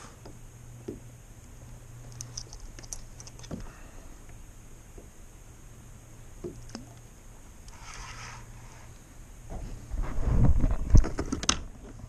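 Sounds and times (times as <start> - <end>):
light clicks of fishing gear: 2.0 - 4.4.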